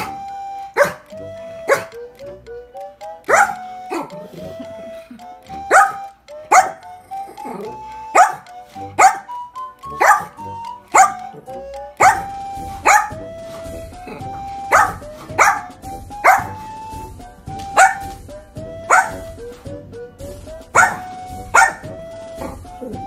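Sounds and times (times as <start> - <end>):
light background music: 0.0 - 23.0
small dog barking: 0.8 - 1.1, 1.7 - 1.9, 3.3 - 4.1, 5.7 - 6.9, 8.2 - 9.3, 10.0 - 11.4, 12.0 - 13.2, 14.7 - 16.6, 17.8 - 18.1, 18.9 - 19.3, 20.8 - 22.6.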